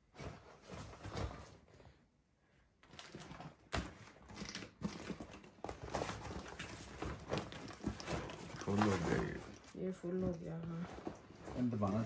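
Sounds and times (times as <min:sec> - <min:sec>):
fabric and bags rustling: 0:04.3 - 0:12.0.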